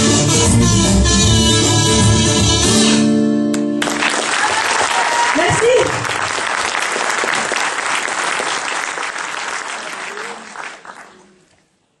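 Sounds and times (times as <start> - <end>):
audience applauding: 3.5 - 11.7.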